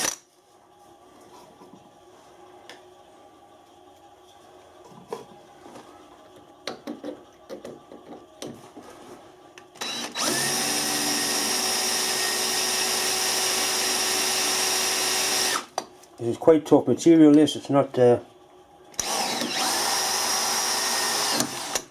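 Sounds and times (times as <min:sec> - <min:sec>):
power drill drilling into metal: 0:09.8 - 0:15.7, 0:19.0 - 0:21.9.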